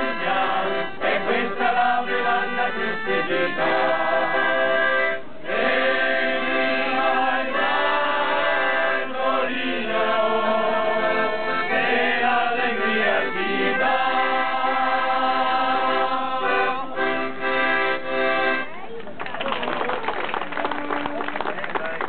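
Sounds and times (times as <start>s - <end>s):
group singing: 0.0s - 17.5s
accordion: 0.0s - 19.0s.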